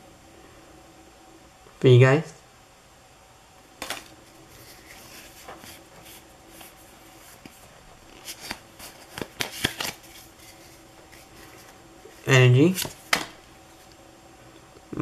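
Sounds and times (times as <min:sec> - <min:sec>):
card snaps and flicks: 0:03.8 - 0:04.2, 0:08.4 - 0:10.1, 0:12.7 - 0:13.4
cards rustling: 0:03.8 - 0:14.0.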